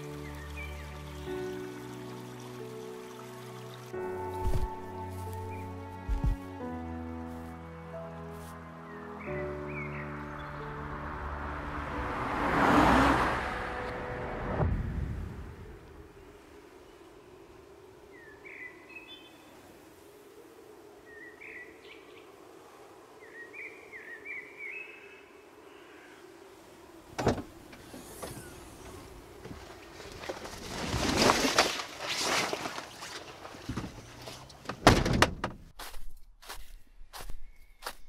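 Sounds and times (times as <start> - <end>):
footsteps crunching in snow: 4.3 - 6.6, 8.3 - 8.6, 35.8 - 38.0.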